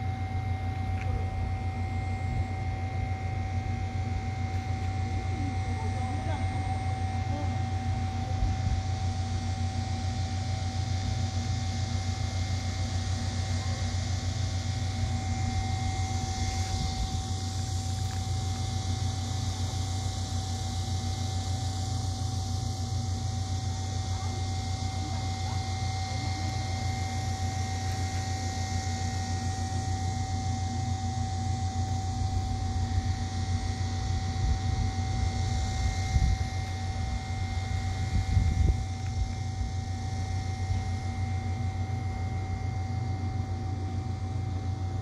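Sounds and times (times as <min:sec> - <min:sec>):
low mechanical drone with whine: 0:00.0 - 0:45.0.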